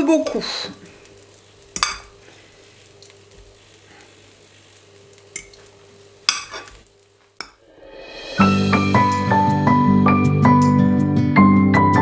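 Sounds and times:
bread sizzling in a pan: 0.0 - 9.0.

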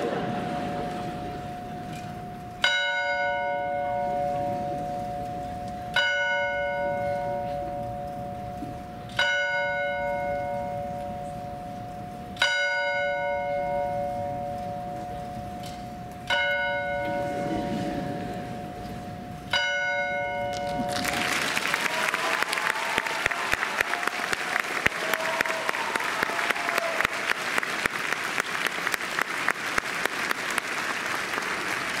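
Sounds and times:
large bell ringing: 0.0 - 21.4
applause: 20.6 - 32.0.

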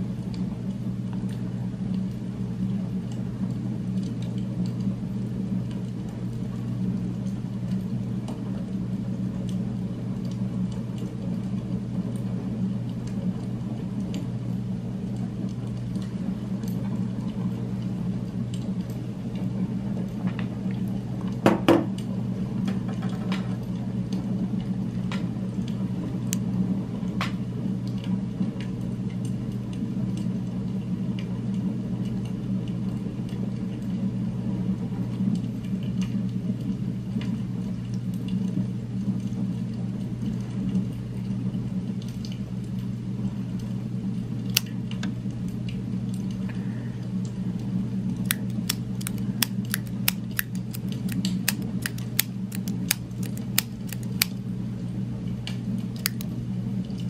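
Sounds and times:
low droning hum: 42.0 - 57.0
metal pen clicks and taps: 48.3 - 54.3, 56.0 - 56.3.

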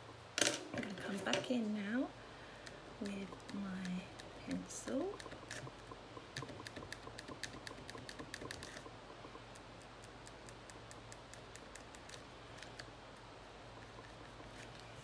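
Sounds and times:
pencil scratching on paper: 6.6 - 8.9.

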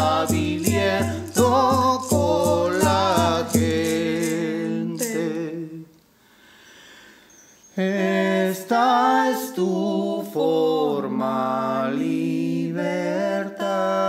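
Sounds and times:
frame drum beats: 0.0 - 5.2
man and woman chanting: 0.0 - 5.9.

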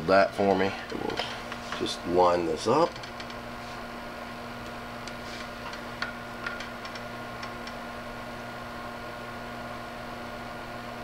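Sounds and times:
low electrical hum: 0.0 - 11.0
soldering iron tip ticking: 4.6 - 7.8.

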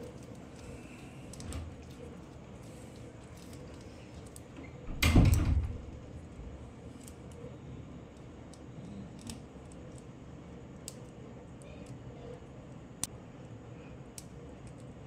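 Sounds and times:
plastic toy parts rustling: 0.0 - 4.6.

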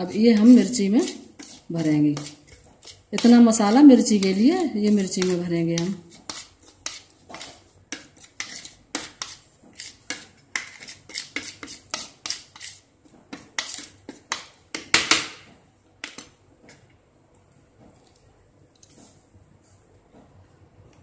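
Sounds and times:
spoon scraping on plastic plate: 0.0 - 14.4.

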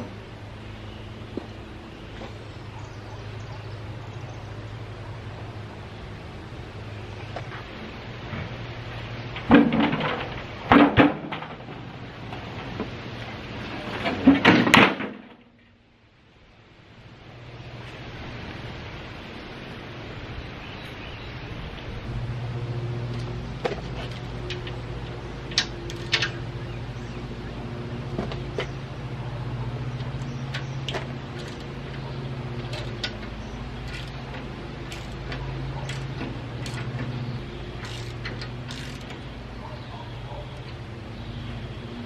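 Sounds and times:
low machine drone: 0.0 - 14.1, 15.8 - 42.0
wrench and ratchet clicking: 25.5 - 26.4, 30.5 - 31.7, 33.8 - 34.3, 34.9 - 37.0, 37.8 - 39.2.

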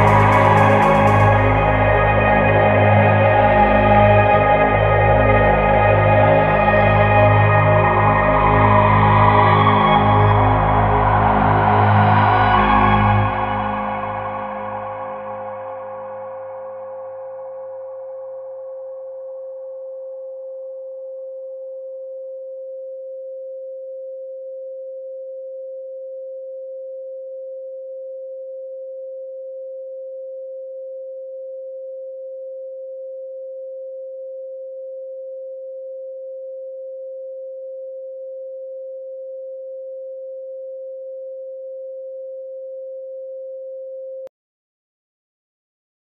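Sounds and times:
faint higher electronic tones: 0.0 - 2.2
steady electronic pure tone: 0.0 - 22.7.

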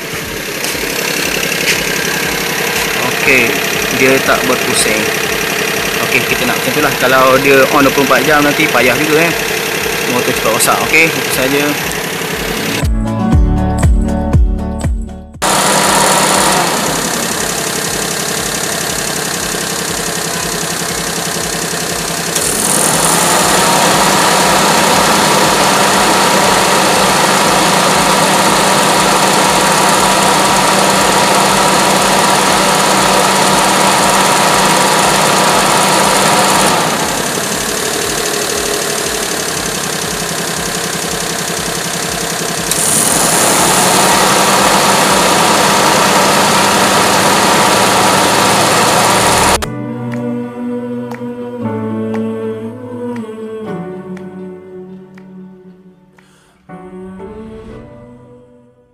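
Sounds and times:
car engine idling: 0.0 - 12.9, 15.4 - 49.7
electric fan humming with rushing air: 15.4 - 49.7.

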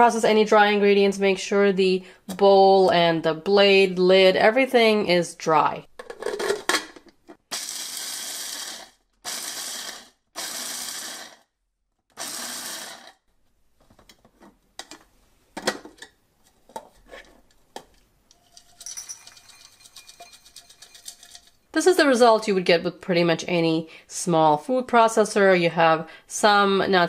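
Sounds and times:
food chopper motor: 7.5 - 11.5, 12.1 - 13.2.

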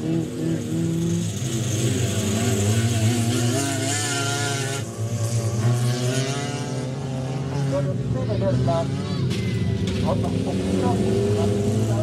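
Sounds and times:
race car engines revving: 0.0 - 12.0.

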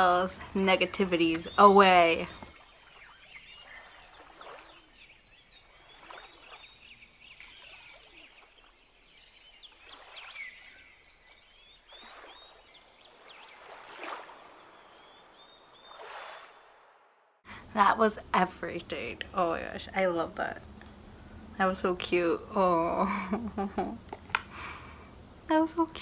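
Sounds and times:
birds chirping: 0.0 - 16.7.

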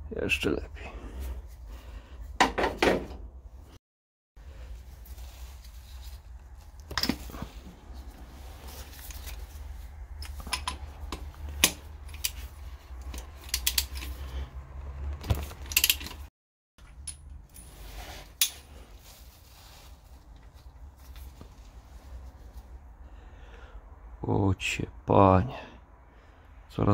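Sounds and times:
ratchet wrench clicking: 13.1 - 14.1.

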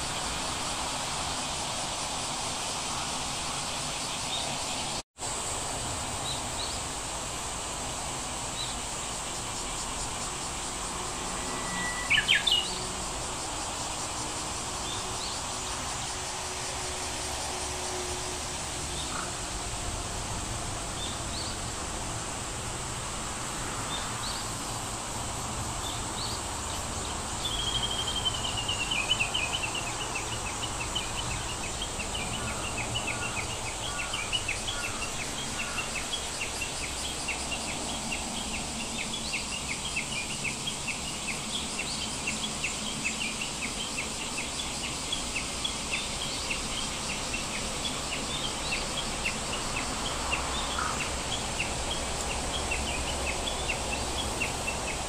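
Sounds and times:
steady background hiss: 0.0 - 55.0
bird trilling and chirping: 11.5 - 12.8.

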